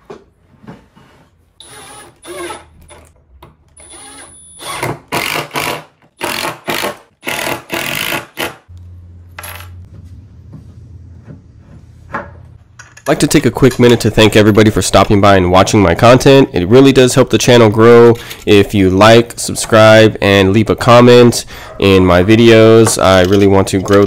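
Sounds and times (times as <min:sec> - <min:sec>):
cordless drill driving screws: 0:01.6 - 0:03.1, 0:03.8 - 0:08.5.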